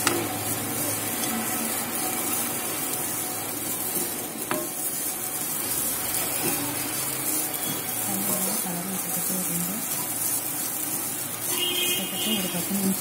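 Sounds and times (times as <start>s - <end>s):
spatula scraping in a pan: 0.0s - 13.0s
spatula tapping on pan: 4.4s - 4.8s.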